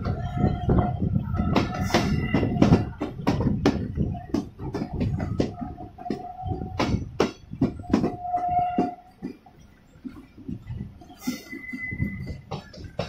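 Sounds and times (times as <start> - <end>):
high wheel squeal: 0.0 - 3.1, 5.1 - 9.7, 11.0 - 13.0
train wheels clattering over rails: 0.0 - 13.0.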